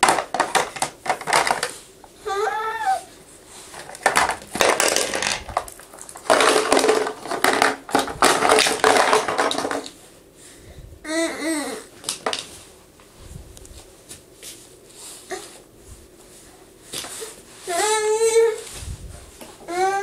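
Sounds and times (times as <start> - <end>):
plastic toy pieces rattling: 0.0 - 1.7, 3.8 - 10.0
baby vocal sound: 2.2 - 3.1, 11.0 - 11.9, 19.6 - 20.0.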